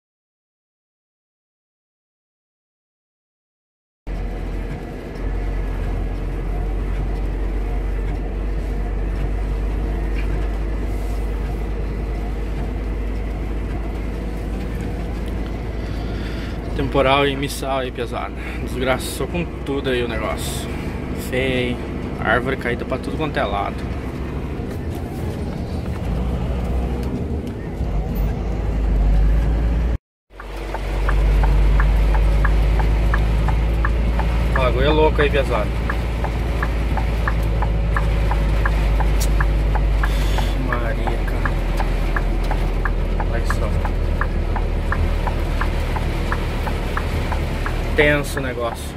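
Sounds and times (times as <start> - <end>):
light regular ticking: 4.1 - 21.3, 30.4 - 48.9
vehicle engine and tyres on wet road: 4.1 - 48.9.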